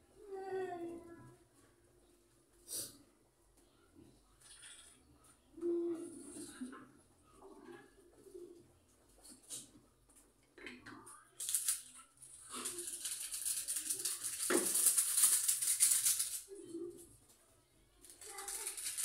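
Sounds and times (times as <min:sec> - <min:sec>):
dry noodles crackling in a box: 0:11.4 - 0:16.5, 0:18.1 - 0:19.0.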